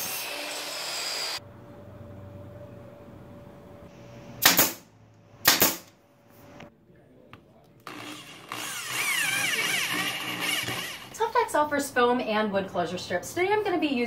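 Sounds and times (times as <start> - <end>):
electric drill driving screw: 7.8 - 11.2.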